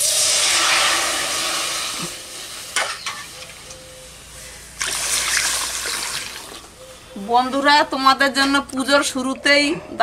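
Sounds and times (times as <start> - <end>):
water pouring into metal pan: 0.0 - 2.4, 4.8 - 6.6.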